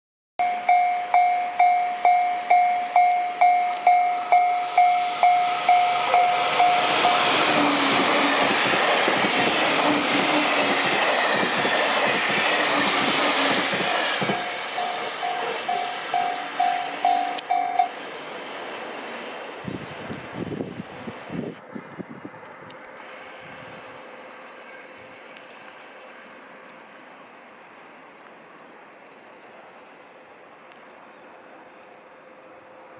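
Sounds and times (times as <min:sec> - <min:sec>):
level crossing warning bell: 0:00.4 - 0:07.5, 0:14.2 - 0:18.0
train wheels clattering over rail joints: 0:06.1 - 0:17.7.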